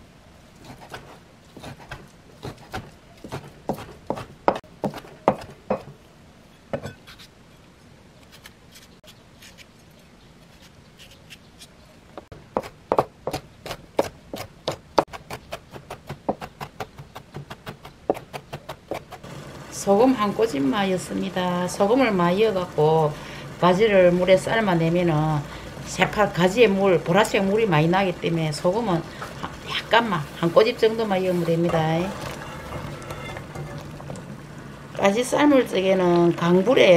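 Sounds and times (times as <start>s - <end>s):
knife chopping on cutting board: 0.7s - 6.0s.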